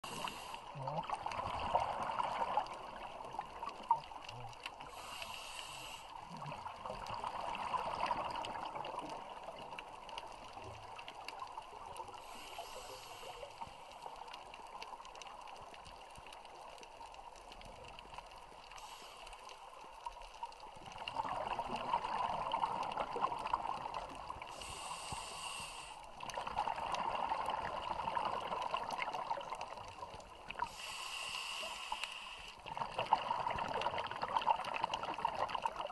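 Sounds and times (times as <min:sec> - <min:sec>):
regulator inhale hiss: 0:00.0 - 0:00.7, 0:04.8 - 0:06.3, 0:12.1 - 0:14.0, 0:18.7 - 0:19.7, 0:24.4 - 0:26.2, 0:30.6 - 0:32.7
exhaled bubbles burbling: 0:00.0 - 0:05.0, 0:06.2 - 0:10.1, 0:20.9 - 0:24.5, 0:26.2 - 0:30.5, 0:32.6 - 0:35.9.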